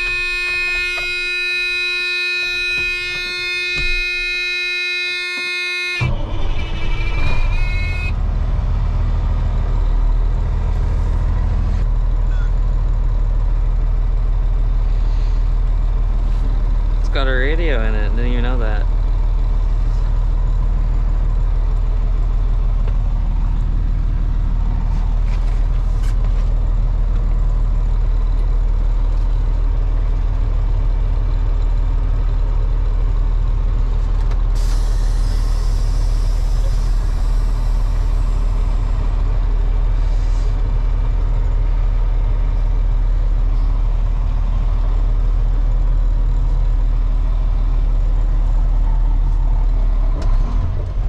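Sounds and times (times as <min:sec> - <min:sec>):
diesel engine running: 0:00.0 - 0:51.0
air brake hiss: 0:34.6 - 0:38.6, 0:40.0 - 0:40.6.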